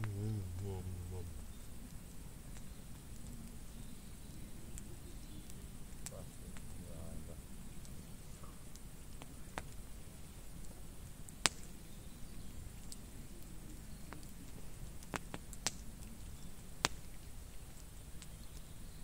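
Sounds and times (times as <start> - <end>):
low steady rumble: 0.0 - 9.2
campfire pops and snaps: 0.0 - 19.0.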